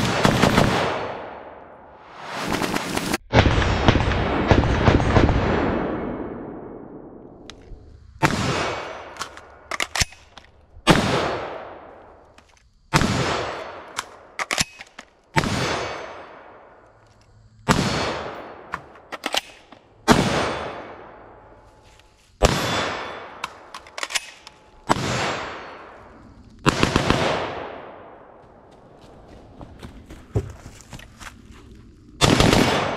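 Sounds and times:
rifle shots with echo: 0.0s - 1.8s, 8.2s - 10.3s, 10.9s - 12.0s, 15.4s - 16.7s, 17.7s - 21.6s, 22.4s - 26.0s, 26.6s - 28.4s, 32.2s - 32.9s.

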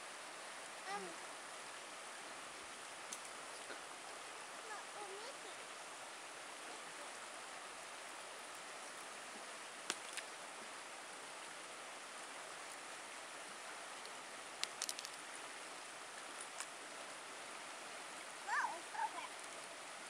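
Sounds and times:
creek flowing over rocks: 0.0s - 20.0s
small child's voice: 0.8s - 1.2s, 4.6s - 5.6s, 18.4s - 19.4s
stones knocking together: 9.9s - 10.3s, 14.6s - 15.2s.

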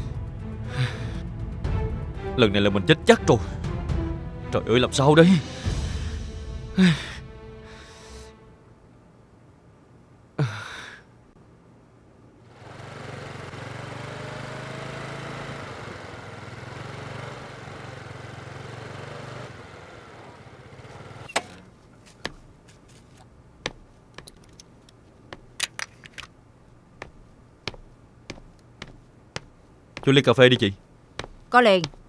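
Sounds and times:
motorbike engine running: 12.5s - 21.3s
hard-soled footsteps on pavement: 21.7s - 32.0s.

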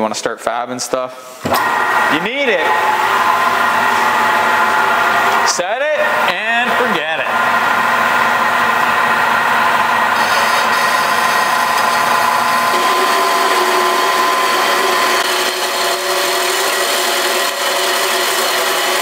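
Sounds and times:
bandsaw cutting metal tube: 10.2s - 19.0s.

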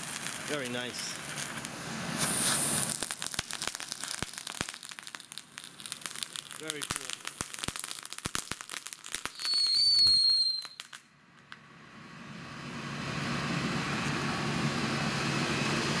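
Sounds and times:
firework whistle: 0.0s - 4.8s, 9.2s - 11.0s
firework crackling: 0.0s - 11.6s.

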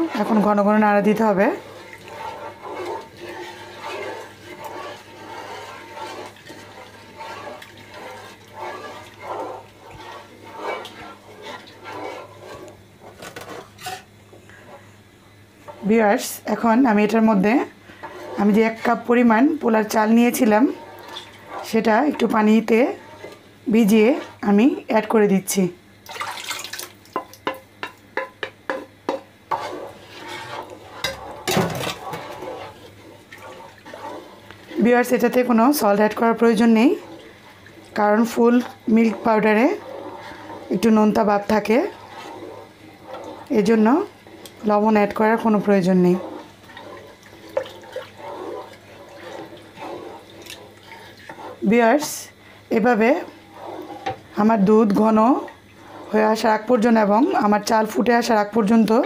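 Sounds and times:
spatula stirring thick liquid: 0.0s - 59.0s
wooden spatula knocking pan: 27.2s - 29.7s.

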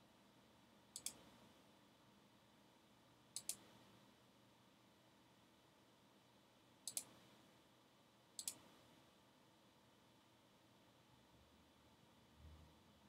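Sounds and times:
computer mouse clicks: 1.0s - 1.3s, 3.4s - 3.7s, 6.8s - 7.2s, 8.4s - 8.8s.

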